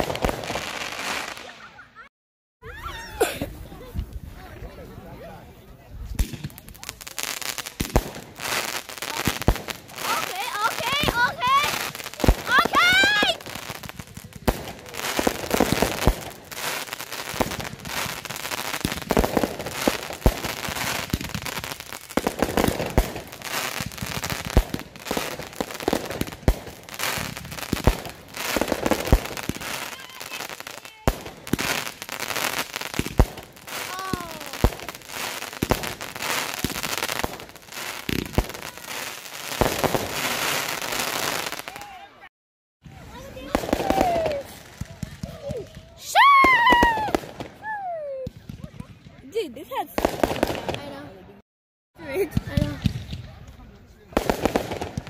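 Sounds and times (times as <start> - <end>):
firework crackling: 0.0 - 1.8, 6.1 - 42.0, 42.9 - 48.6, 49.3 - 51.2, 52.0 - 55.0
firework shells booming: 7.8 - 41.7, 54.2 - 55.0.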